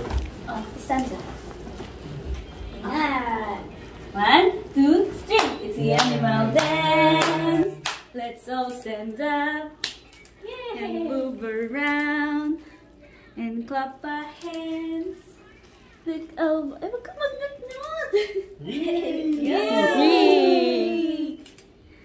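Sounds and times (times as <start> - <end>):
woman singing children's song: 4.2 - 9.8, 10.7 - 15.4, 16.0 - 18.2
hand claps: 5.3 - 8.1.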